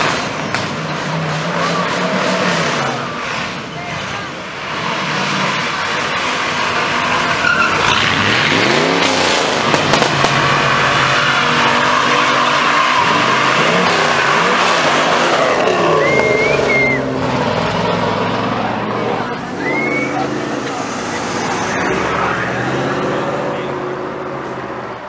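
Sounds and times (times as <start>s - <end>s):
car engine revving hard: 0.0s - 24.9s
tyres screeching: 1.1s - 23.8s.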